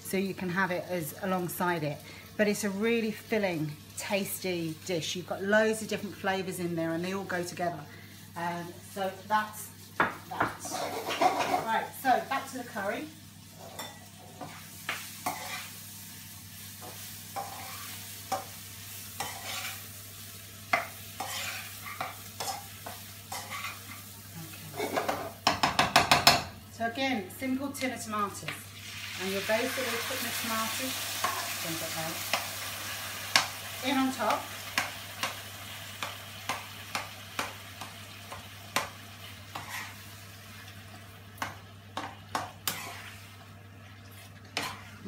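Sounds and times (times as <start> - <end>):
vegetables sizzling in a pan: 0.0 - 45.0
spatula scraping and tapping pan: 10.0 - 11.8, 13.6 - 15.8, 16.8 - 18.6, 19.2 - 19.9, 20.7 - 24.0, 31.2 - 31.5, 36.0 - 40.0, 41.4 - 43.3, 44.4 - 45.0
utensil knocking against pan: 25.4 - 26.5.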